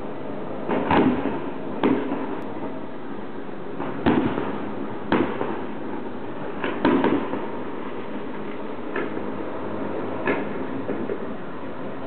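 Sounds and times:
fireworks bangs: 0.7 - 2.4, 3.8 - 5.7, 6.5 - 8.0.

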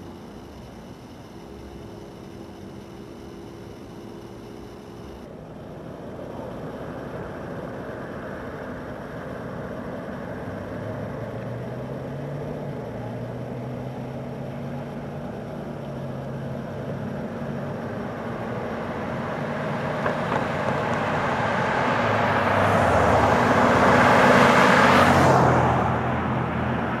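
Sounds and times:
vehicle passing by: 6.8 - 27.0.

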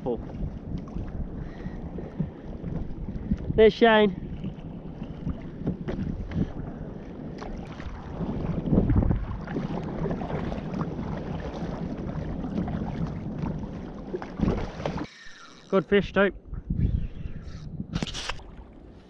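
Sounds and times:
wind buffeting microphone: 0.0 - 15.1, 15.8 - 19.0
water sloshing around kayak: 0.0 - 16.8.

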